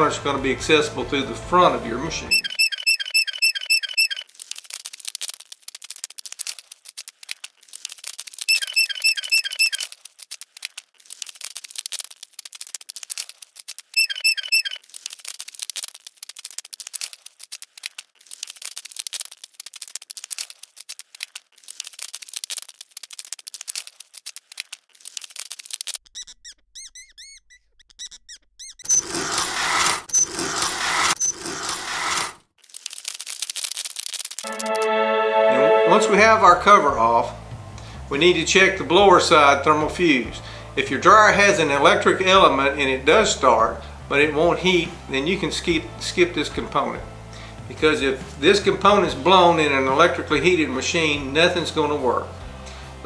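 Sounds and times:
screws squeaking: 2.3 - 4.4, 8.4 - 10.0, 13.7 - 14.9, 25.5 - 32.4
small clicks and ticks: 2.7 - 29.9, 32.5 - 34.5.

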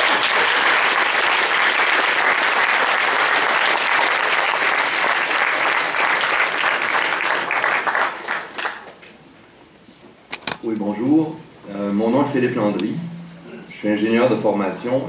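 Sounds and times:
audience applauding: 0.0 - 9.2.

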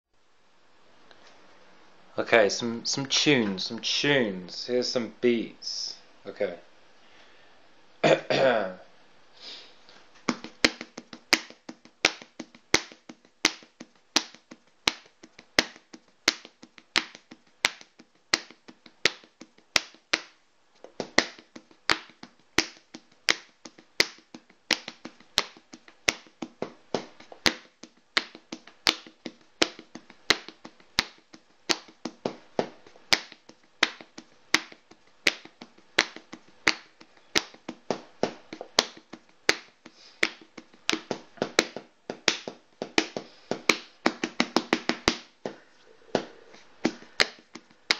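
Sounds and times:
faint steady hum: 0.2 - 47.9
rhythmic clicks and taps: 10.2 - 47.9.

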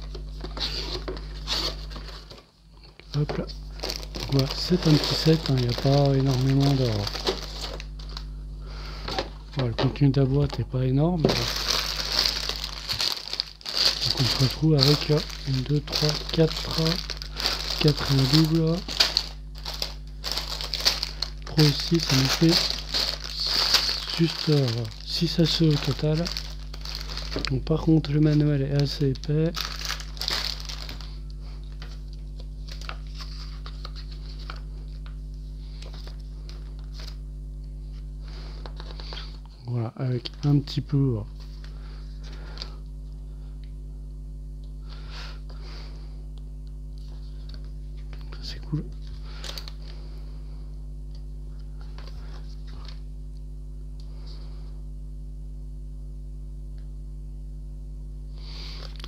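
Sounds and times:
steady low hum: 0.0 - 59.0
plastic bags crinkling: 3.2 - 8.2, 11.2 - 34.6, 49.0 - 49.9
paper pages leafed through: 3.8 - 7.8, 11.3 - 27.5.

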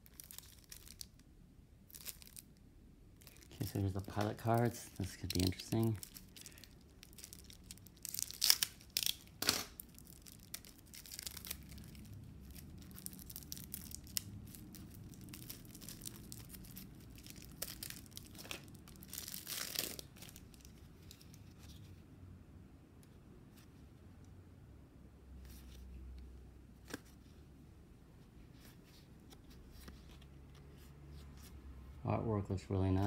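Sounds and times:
plastic wrap tearing and crinkling: 0.0 - 1.2, 1.9 - 2.6, 3.2 - 21.5.

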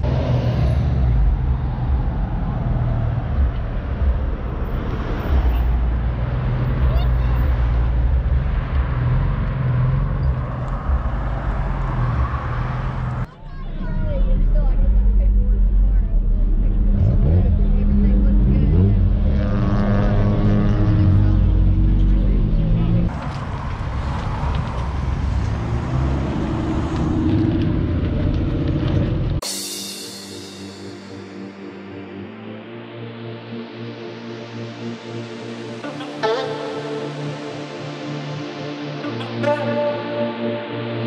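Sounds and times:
road traffic rumble: 0.0 - 29.4
car driving past slowly: 13.9 - 29.4.

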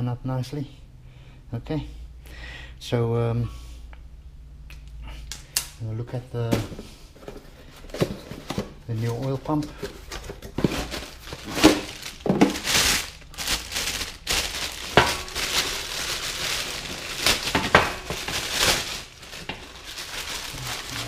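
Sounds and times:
plastic packaging crinkling: 8.0 - 21.0.

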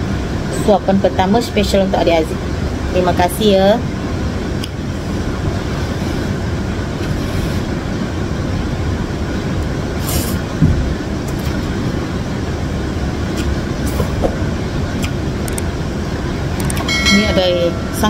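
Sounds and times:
person slurping noodles: 7.0 - 7.7, 10.0 - 10.4.

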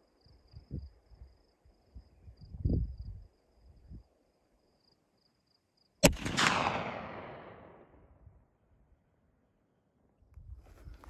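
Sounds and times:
faint insect chirping: 0.0 - 6.0
rifle shot: 6.0 - 8.1.

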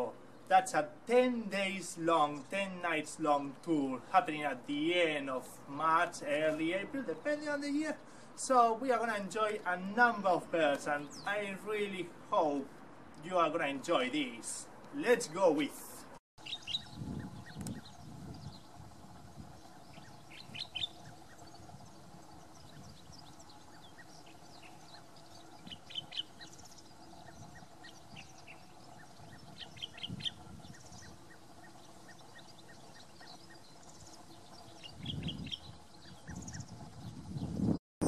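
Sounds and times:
bird singing short phrases: 10.8 - 12.0, 16.4 - 18.8, 19.5 - 37.5
faint bird calls: 19.6 - 36.8.

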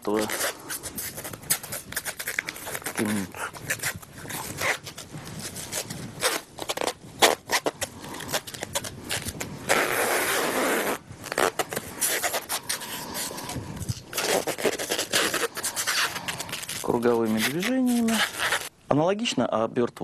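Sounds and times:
cling film unwinding and stretching: 0.0 - 18.8.

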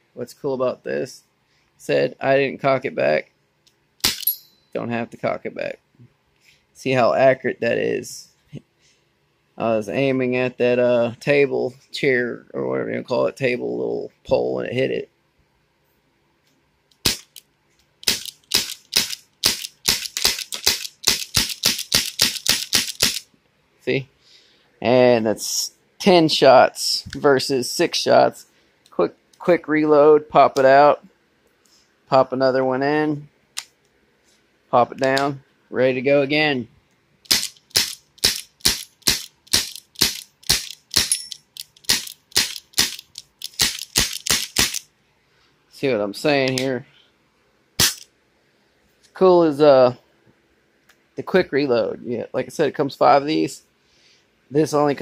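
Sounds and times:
airsoft revolver shots: 4.0 - 4.4, 17.0 - 17.3, 18.0 - 23.2, 37.3 - 41.2, 41.9 - 44.8, 47.8 - 48.0.

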